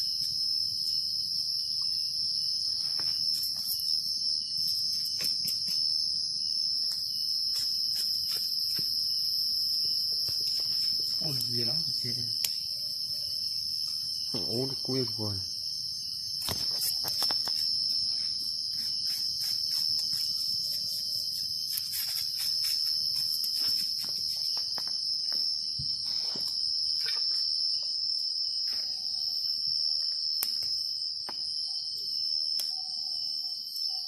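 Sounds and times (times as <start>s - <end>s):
night insects droning: 0.0s - 34.0s
wood fire crackling: 10.0s - 12.7s.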